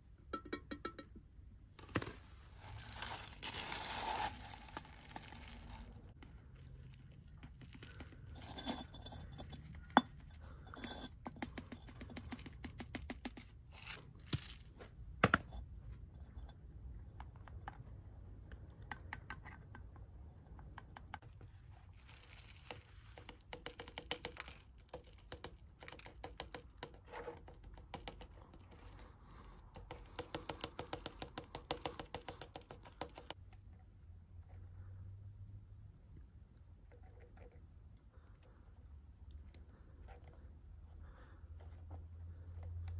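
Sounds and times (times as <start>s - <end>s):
soil grains trickling into pot: 1.8s - 10.0s, 21.7s - 23.5s.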